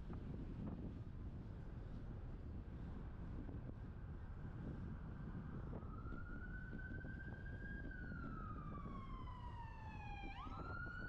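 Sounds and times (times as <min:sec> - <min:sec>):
wind rumble on microphone: 0:00.0 - 0:11.0
siren wailing: 0:08.5 - 0:11.0.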